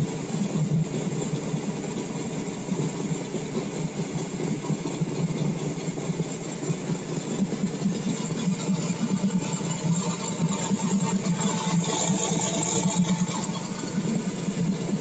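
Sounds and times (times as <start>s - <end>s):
car engine idling: 6.4s - 15.0s.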